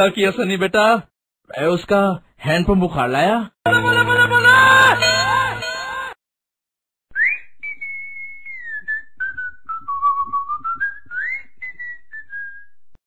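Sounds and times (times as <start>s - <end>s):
person whistling a tune: 7.1s - 12.8s.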